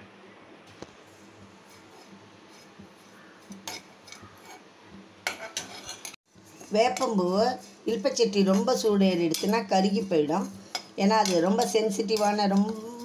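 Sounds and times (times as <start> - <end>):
metal spoon scraping dry flowers: 1.6 - 13.0.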